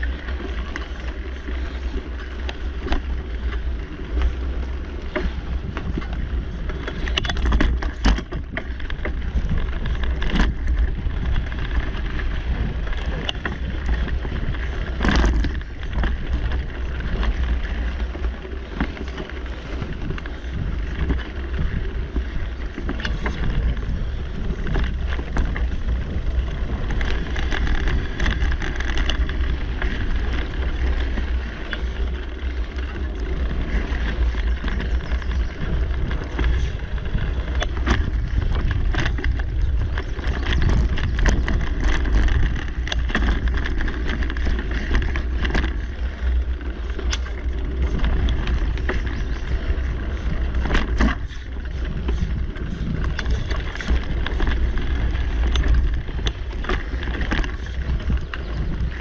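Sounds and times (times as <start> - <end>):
bike rattling over bumps: 0.0 - 59.0
bike tyres rolling on dirt: 0.0 - 59.0
wind buffeting microphone: 0.0 - 59.0.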